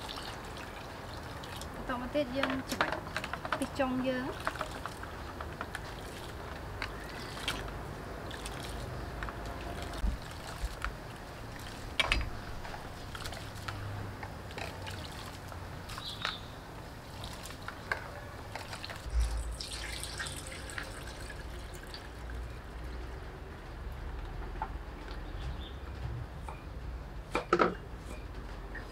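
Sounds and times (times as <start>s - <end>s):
water swishing and trickling: 0.0s - 2.4s, 3.0s - 23.7s
water pouring hiss: 19.0s - 22.0s.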